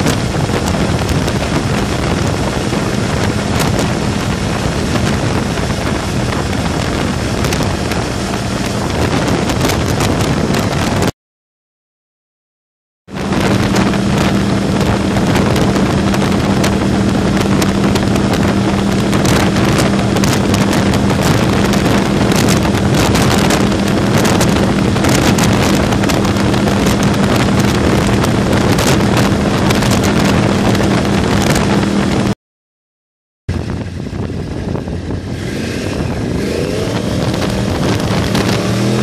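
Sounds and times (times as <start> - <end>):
motorcycle engine cruising: 0.0 - 11.1, 13.1 - 32.4, 33.5 - 39.0
wind rush on microphone: 0.0 - 11.1, 13.1 - 32.4, 33.5 - 39.0.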